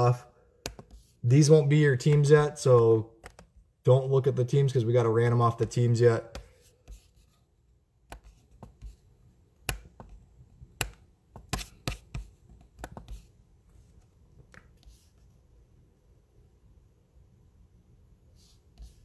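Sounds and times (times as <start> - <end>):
mouse and keyboard clicks: 3.2 - 3.6, 10.8 - 13.2.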